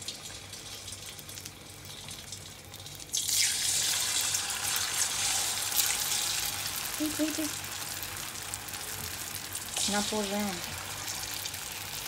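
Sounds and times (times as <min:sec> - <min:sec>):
batter deep-frying sizzle: 0:00.0 - 0:12.0
hot oil hissing: 0:03.1 - 0:12.0.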